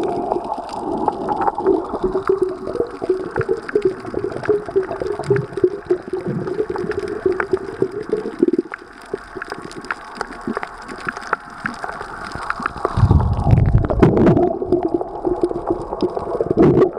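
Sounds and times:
underwater water noise: 0.0s - 16.9s
low rumbling water surge: 12.9s - 14.8s.

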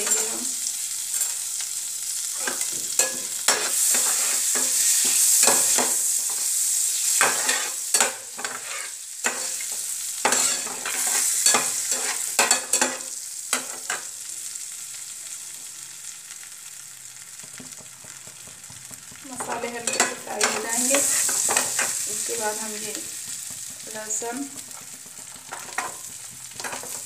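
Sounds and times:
spices sizzling in butter: 0.0s - 27.0s
spatula scraping and knocking pan: 2.3s - 14.1s, 17.4s - 27.0s.

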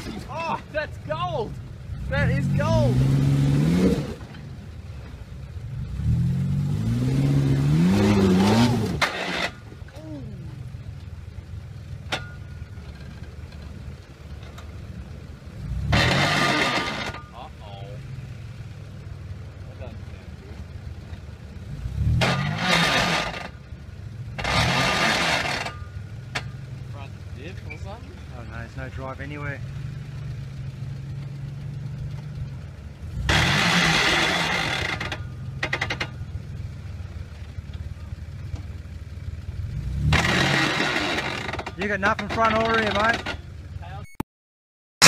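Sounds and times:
suv engine revving: 0.0s - 43.9s
tyres spinning in dirt: 15.8s - 17.6s, 24.3s - 26.6s, 33.3s - 36.6s, 40.0s - 43.6s.

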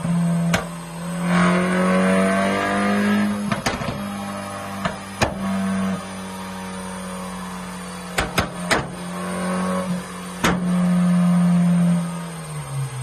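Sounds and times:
car engine droning on dyno: 0.0s - 13.0s
sharp exhaust pops: 0.4s - 1.5s, 3.4s - 4.1s, 8.1s - 9.0s, 10.4s - 10.8s.

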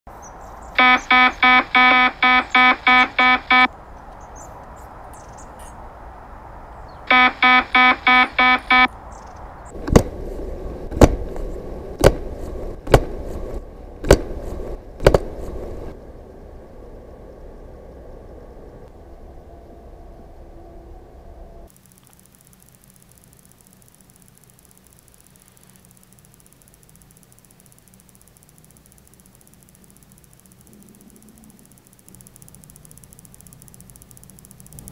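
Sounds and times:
app alarm beeping: 0.8s - 3.7s, 7.1s - 8.9s.

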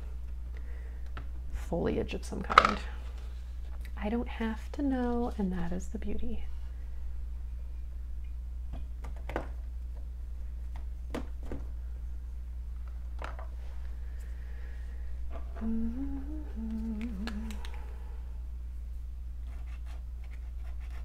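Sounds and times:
low background hum: 0.0s - 21.0s
person humming a tune: 15.3s - 18.1s.

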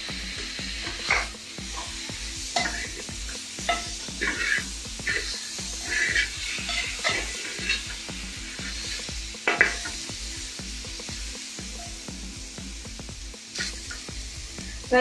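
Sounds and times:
frying sizzle: 0.0s - 15.0s
metal spatula scraping pan: 0.8s - 10.0s.

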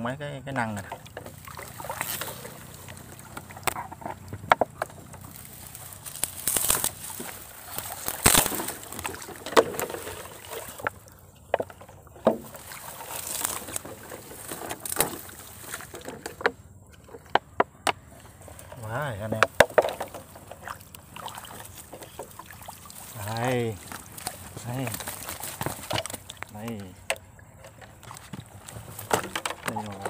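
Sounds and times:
water sloshing: 0.5s - 30.0s
reeds rustling: 1.1s - 16.5s, 18.0s - 26.8s
snaps and knocks: 6.0s - 9.9s.

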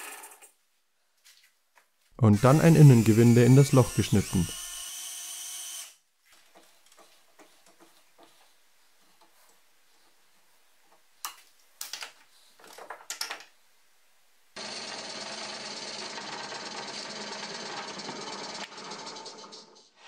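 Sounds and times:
drill press boring into wood: 2.4s - 6.0s, 14.6s - 19.4s.

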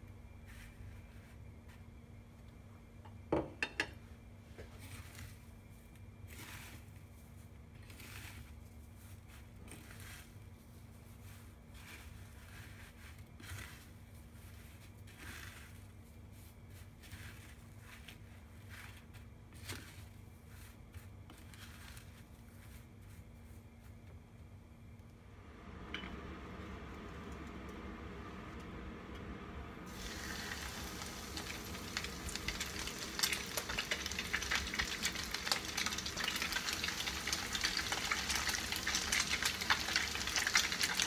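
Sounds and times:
breadcrumbs rustling and crunching: 0.2s - 2.6s, 4.6s - 25.0s, 29.9s - 41.0s
low hum: 25.0s - 35.3s.

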